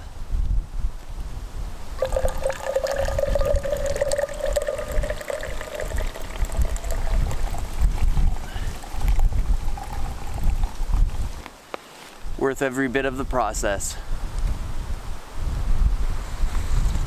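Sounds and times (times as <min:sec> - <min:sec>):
wind rumbling on microphone: 0:00.0 - 0:11.5, 0:13.6 - 0:17.0
liquid pouring into a cup: 0:02.0 - 0:11.3.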